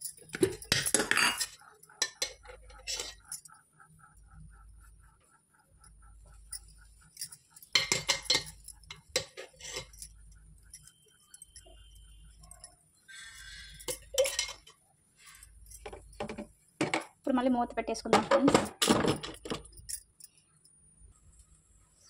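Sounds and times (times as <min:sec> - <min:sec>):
utensils clinking on griddle: 0:00.0 - 0:03.5, 0:07.2 - 0:10.1, 0:13.3 - 0:14.7.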